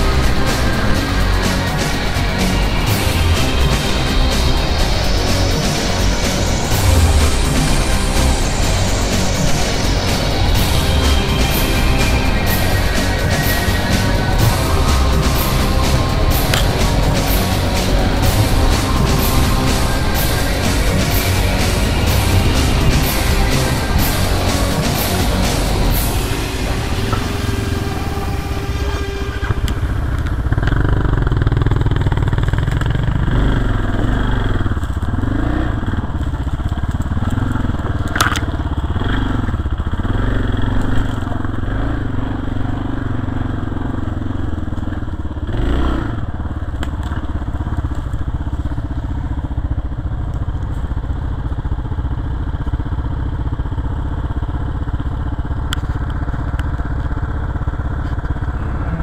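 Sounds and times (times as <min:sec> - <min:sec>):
motorcycle engines revving: 0:00.0 - 0:59.0.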